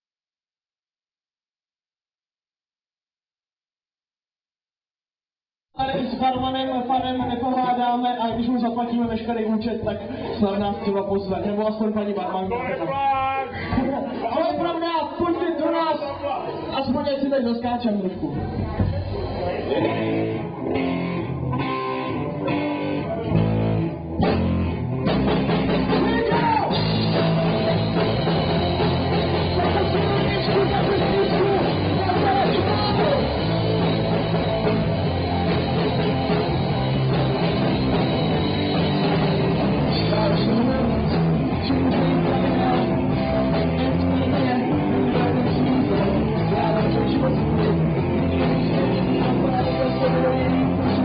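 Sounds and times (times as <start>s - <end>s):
live rock band playing: 18.4s - 51.0s
person singing: 25.9s - 34.1s, 39.8s - 51.0s.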